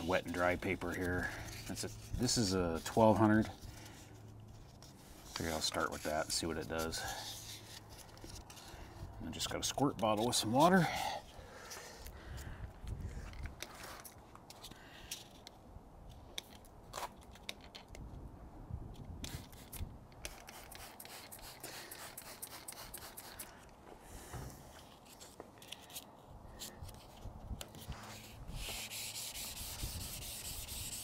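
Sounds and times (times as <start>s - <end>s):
sandpaper rubbing on wet paint: 0.0s - 10.8s, 19.2s - 23.6s, 26.6s - 31.0s.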